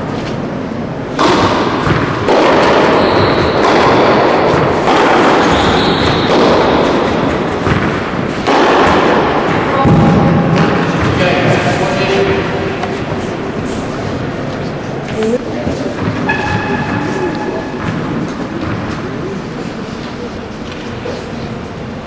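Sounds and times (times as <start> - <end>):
echo in hall: 0.0 - 22.0
tennis ball hit by racket: 1.1 - 11.6.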